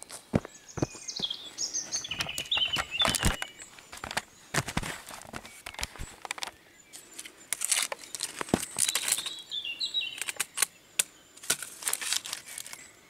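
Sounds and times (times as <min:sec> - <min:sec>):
footsteps on gravel: 0:00.0 - 0:06.5
bird singing falling notes: 0:00.0 - 0:13.0.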